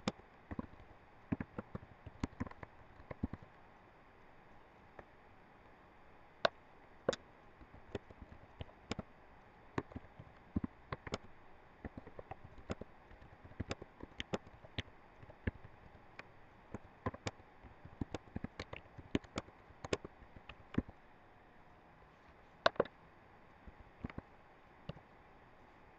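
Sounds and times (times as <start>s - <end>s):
keyboard keystroke clicks: 0.0s - 3.5s, 9.8s - 16.0s, 16.7s - 21.0s, 22.6s - 22.9s, 24.0s - 24.2s
faint steady hiss: 0.0s - 25.9s.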